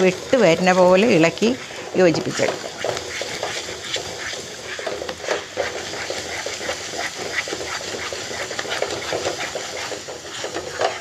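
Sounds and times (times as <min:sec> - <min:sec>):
wooden spatula scraping a pan: 0:00.0 - 0:11.0.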